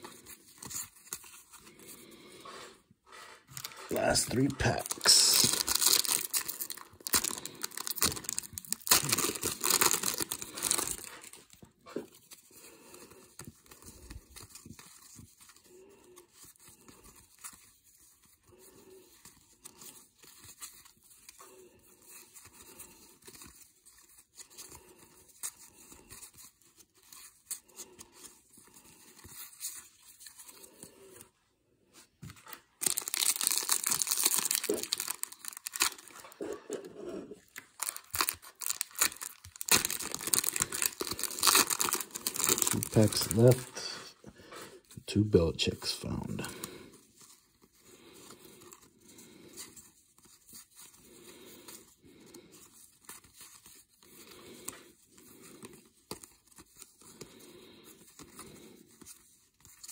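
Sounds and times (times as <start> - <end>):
trading cards rustling: 3.3 - 15.7, 32.0 - 36.5, 37.4 - 43.8
foil wrapper crinkling and tearing: 3.5 - 12.3, 32.6 - 36.4, 37.4 - 43.9.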